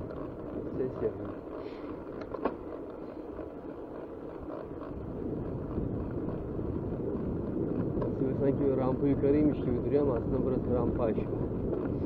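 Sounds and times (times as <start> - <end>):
bike tyre rumble: 0.0 - 12.0
wind rushing on microphone: 5.0 - 12.0.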